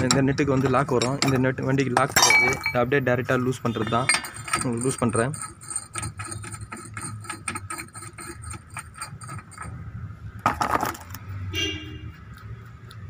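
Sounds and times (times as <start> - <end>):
loud metal clatter: 3.8 - 11.2
small metallic clicks: 12.1 - 13.0.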